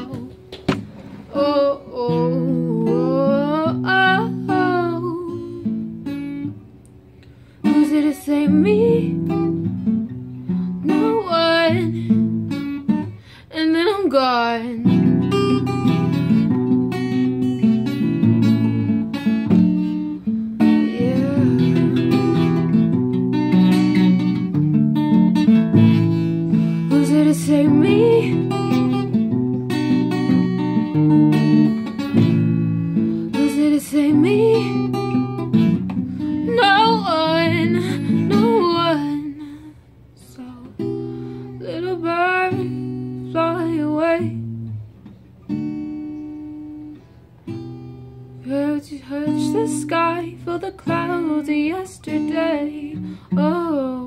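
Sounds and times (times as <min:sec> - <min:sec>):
person singing: 0:00.0 - 0:00.4, 0:01.4 - 0:05.6, 0:20.7 - 0:22.8
acoustic guitar ballad: 0:00.0 - 0:54.0.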